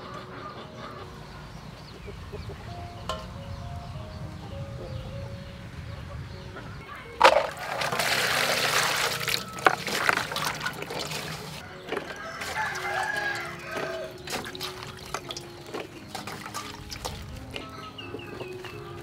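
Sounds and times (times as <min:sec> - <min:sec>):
water pouring into metal bowl: 0:07.2 - 0:17.6
hands splashing in water: 0:07.2 - 0:18.8.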